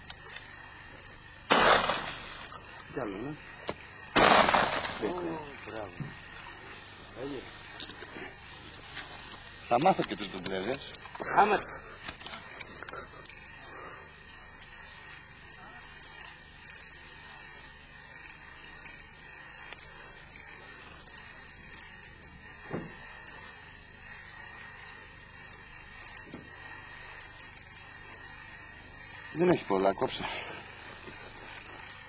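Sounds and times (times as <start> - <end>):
insects chirping: 0.0 - 32.0
dull thump: 22.7 - 23.0.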